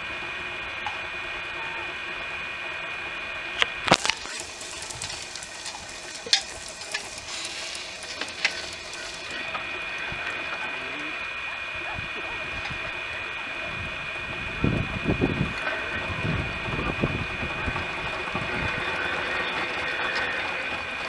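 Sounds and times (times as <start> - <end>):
road roller moving: 0.0 - 21.0
steady high whine: 0.0 - 21.0
hiss: 4.0 - 10.2.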